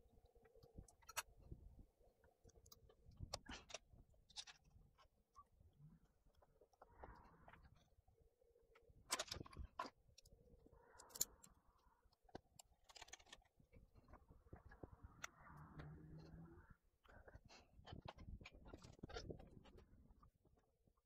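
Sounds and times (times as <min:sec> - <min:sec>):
clicks and rustles of laptop repair: 0:12.1 - 0:13.6.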